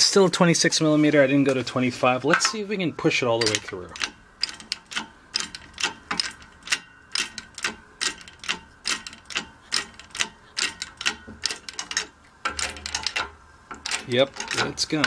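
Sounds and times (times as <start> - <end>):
hydraulic press pump clicks: 3.4 - 15.0.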